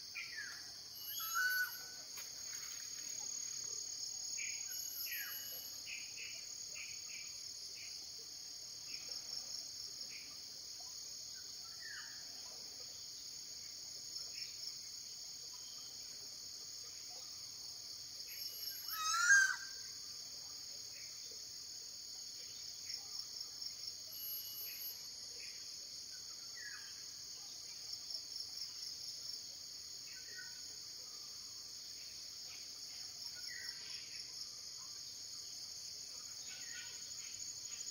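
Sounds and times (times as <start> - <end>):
faint bird chirps: 0.0 - 2.1, 4.4 - 7.9, 18.2 - 20.0, 24.1 - 25.6
insect chorus: 0.0 - 37.9.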